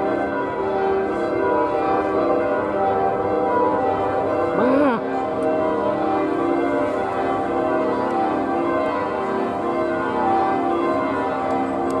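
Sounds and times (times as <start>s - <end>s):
church bells pealing: 0.0s - 12.0s.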